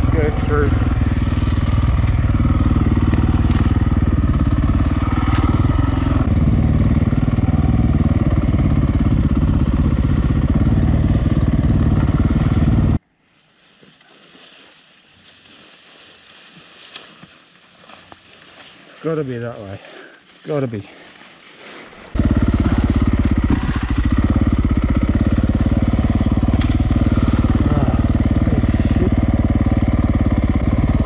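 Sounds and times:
dirt bike engine running: 0:00.0 - 0:13.0, 0:22.1 - 0:31.0
quiet bush ambience: 0:00.0 - 0:31.0.

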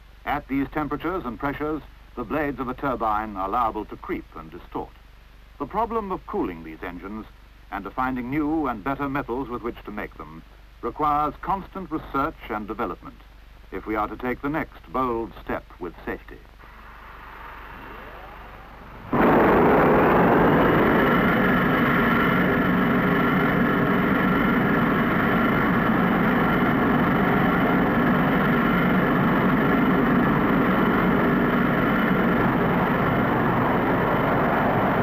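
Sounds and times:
jet combustion roar with whine: 0:16.6 - 0:35.0.

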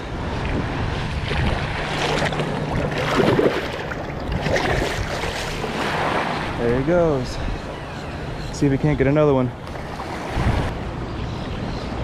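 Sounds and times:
wind on microphone: 0:00.0 - 0:09.0, 0:09.8 - 0:10.8
small waves lapping: 0:00.4 - 0:07.9, 0:09.6 - 0:10.7
shallow water splashing: 0:01.2 - 0:06.6.

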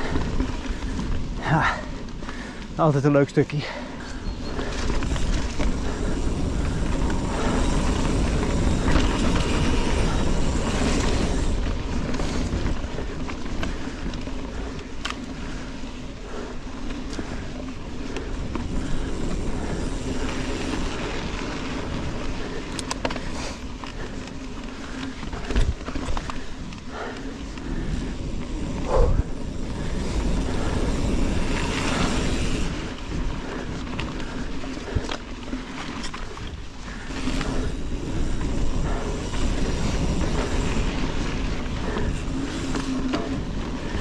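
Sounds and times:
bike chain and frame rattling: 0:00.0 - 0:44.0
bike tyres rolling on dirt: 0:00.0 - 0:44.0
wind on microphone: 0:27.7 - 0:33.9.

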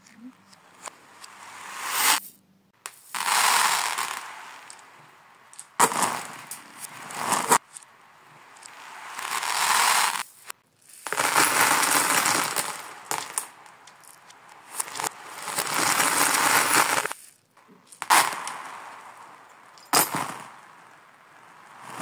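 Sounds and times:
reversed plastic beads clattering: 0:08.6 - 0:19.2.

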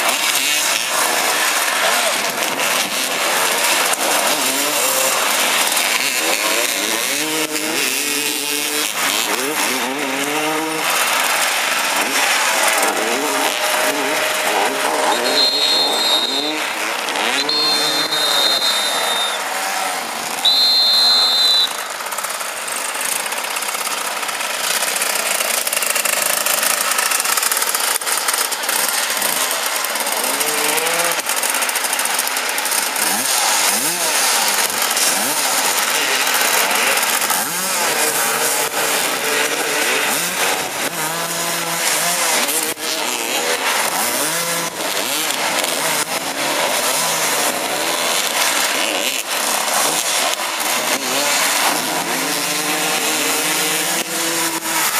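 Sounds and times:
motorcycle engines revving: 0:00.0 - 0:54.9
short high whistle blast: 0:15.1 - 0:16.6, 0:17.4 - 0:19.5, 0:20.4 - 0:21.8.

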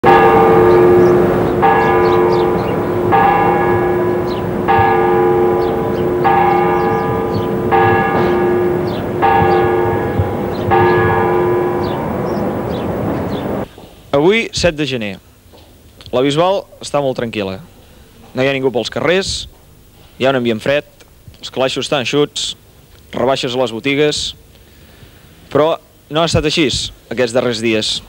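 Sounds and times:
church bell tolling: 0:00.0 - 0:13.7.

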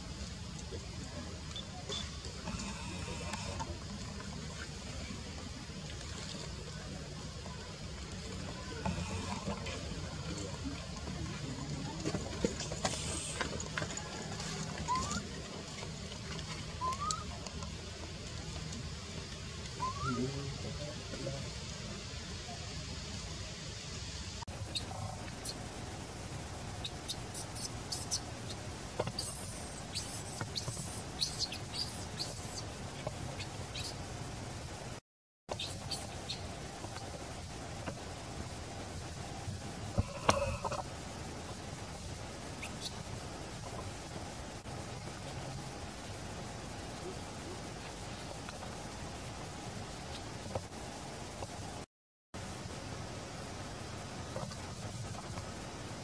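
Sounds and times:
steady background hiss: 0:00.0 - 0:56.0
baby monkey squeaking: 0:14.9 - 0:15.2.

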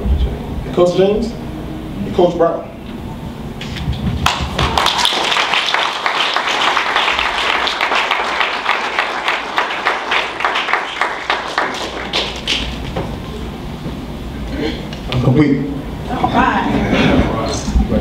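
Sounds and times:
audience applauding: 0:04.2 - 0:13.0.

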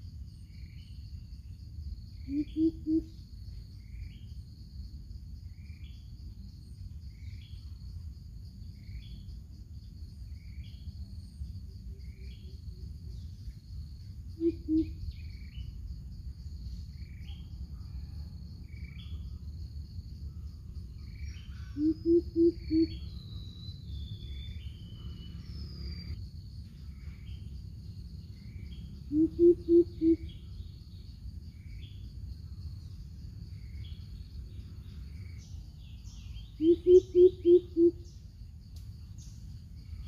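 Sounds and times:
high insect drone: 0:00.0 - 0:40.0
bird giving deep hoots: 0:02.2 - 0:03.2, 0:14.4 - 0:15.0, 0:21.5 - 0:23.0, 0:29.1 - 0:30.4, 0:36.6 - 0:38.1.

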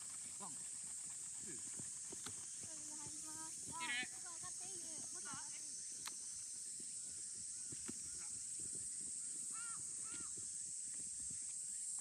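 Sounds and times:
crow cawing: 0:09.5 - 0:10.3.

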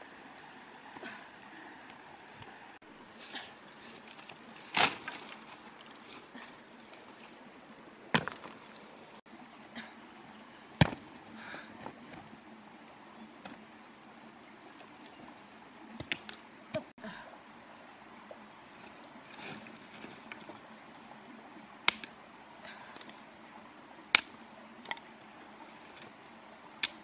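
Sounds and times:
stream trickling: 0:02.4 - 0:10.8, 0:13.7 - 0:26.9.

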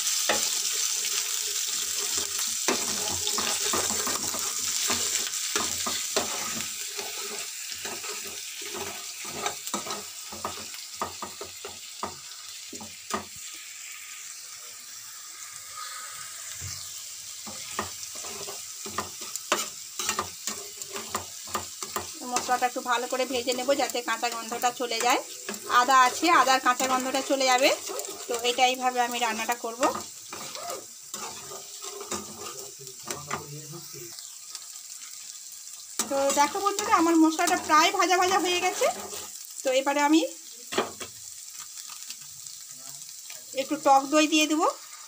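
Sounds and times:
paste sizzling in hot oil: 0:00.0 - 0:45.0
metal spatula scraping pan: 0:00.3 - 0:12.2, 0:16.7 - 0:22.6, 0:23.7 - 0:33.5, 0:36.0 - 0:39.4.

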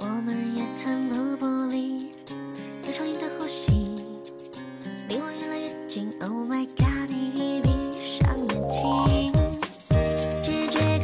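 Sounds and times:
pop song with steady beat: 0:00.0 - 0:11.0
low drum hits: 0:08.2 - 0:10.1
quick rising run of notes: 0:08.5 - 0:09.4.

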